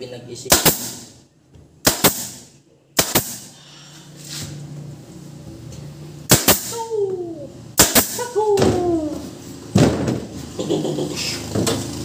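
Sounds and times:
pneumatic staple gun firing: 0:00.5 - 0:01.1, 0:01.8 - 0:02.4, 0:03.0 - 0:03.5, 0:06.3 - 0:06.8, 0:07.8 - 0:08.2.

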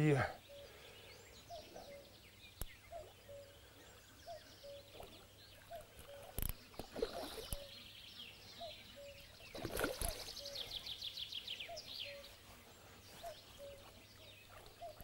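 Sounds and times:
birdsong: 0:00.0 - 0:15.0
fish splashing in water: 0:04.9 - 0:07.7, 0:09.5 - 0:10.5.

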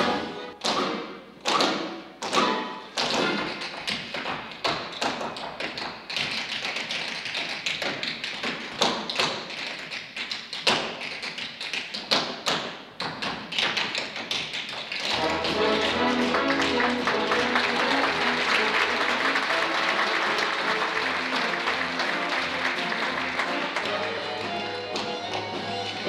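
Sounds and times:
music: 0:00.0 - 0:04.2, 0:14.9 - 0:26.0
tap shoes striking stage floor: 0:00.0 - 0:26.0.

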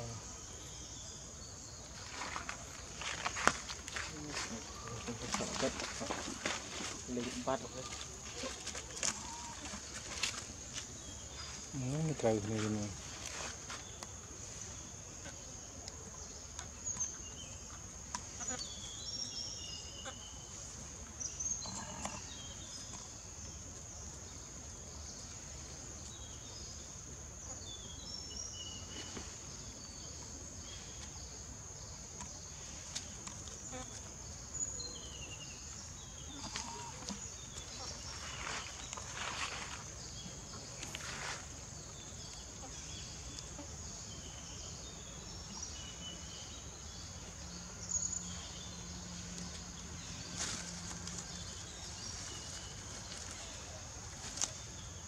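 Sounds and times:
scuffling noises: 0:02.0 - 0:11.7.

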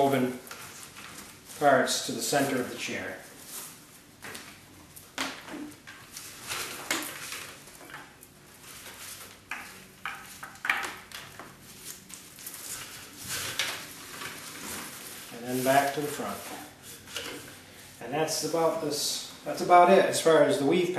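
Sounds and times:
paper cord rustling and swishing: 0:11.2 - 0:17.6.

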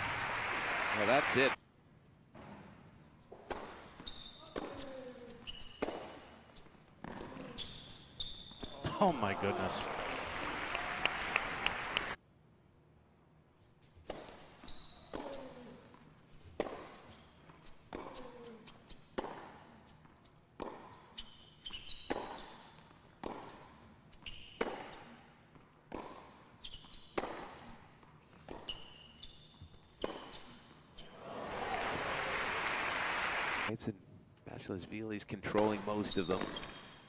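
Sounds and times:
crowd applause: 0:00.0 - 0:01.6, 0:08.9 - 0:12.2, 0:31.2 - 0:33.7
tennis ball bouncing: 0:03.3 - 0:07.7, 0:14.0 - 0:15.6, 0:16.4 - 0:30.8
shoe squeaks: 0:03.7 - 0:08.8, 0:13.8 - 0:19.7, 0:20.3 - 0:25.4, 0:26.2 - 0:31.2, 0:35.6 - 0:37.0
tennis racket hitting ball: 0:05.7 - 0:06.2, 0:16.4 - 0:19.5, 0:20.5 - 0:28.8, 0:29.9 - 0:30.6.

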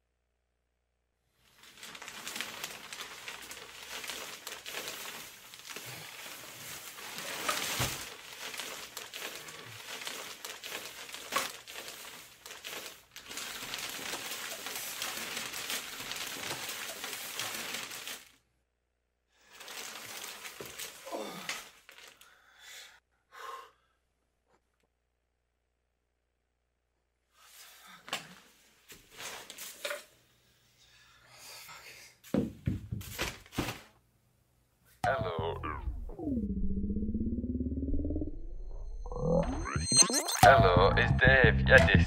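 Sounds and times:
plastic bin bags rustling: 0:01.4 - 0:18.4, 0:19.5 - 0:22.2, 0:28.8 - 0:30.1, 0:33.0 - 0:34.0.

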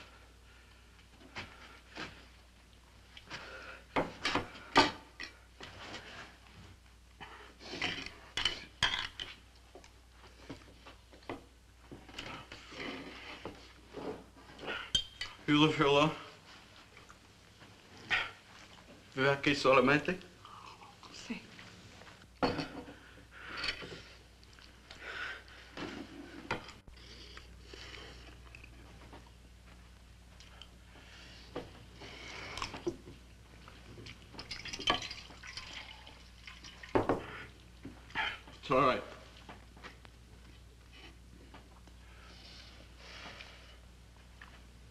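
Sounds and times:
water splashing into washbasin: 0:34.4 - 0:37.0.

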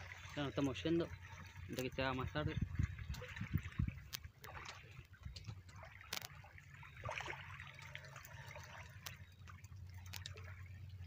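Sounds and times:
low steady hum: 0:00.0 - 0:11.0
water lapping at riverbank: 0:00.0 - 0:11.0
small clicks: 0:10.0 - 0:10.4.

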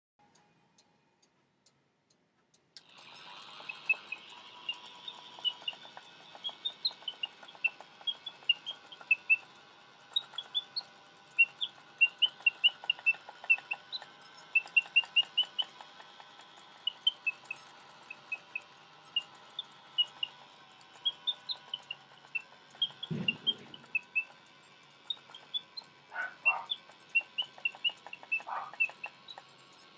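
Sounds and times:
clockwork mechanism whirring: 0:02.7 - 0:29.9
mechanical bird whistle chirping: 0:02.8 - 0:29.9.

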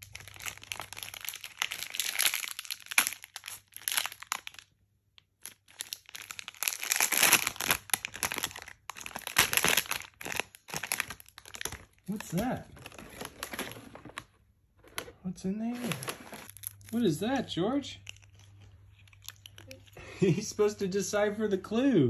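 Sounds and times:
foil paper crumpling and tearing: 0:00.0 - 0:04.6, 0:05.4 - 0:14.2, 0:15.7 - 0:17.1.

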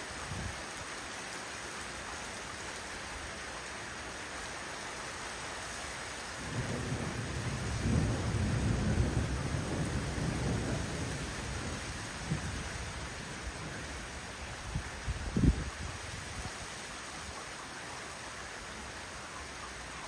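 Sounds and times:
rain hiss: 0:00.0 - 0:20.0
thunder rumbling: 0:06.4 - 0:14.0.

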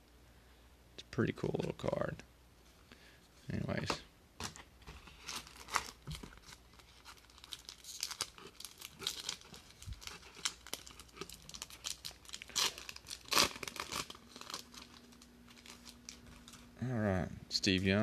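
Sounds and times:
foil wrapper crinkling and tearing: 0:05.0 - 0:16.8.

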